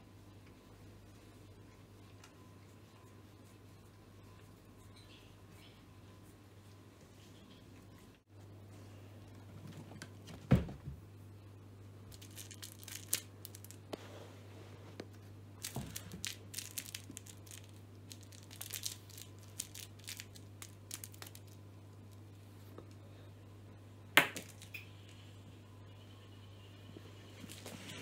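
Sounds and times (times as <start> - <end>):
crinkly rustling: 12.1 - 22.8, 27.3 - 28.0.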